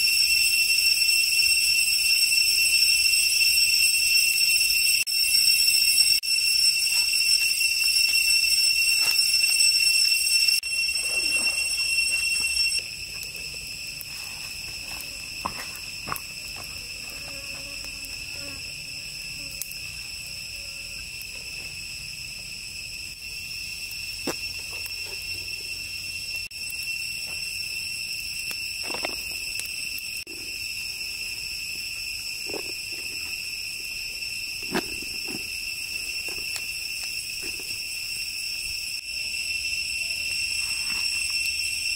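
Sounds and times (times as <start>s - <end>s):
high-pitched insect drone: 0.0s - 41.9s.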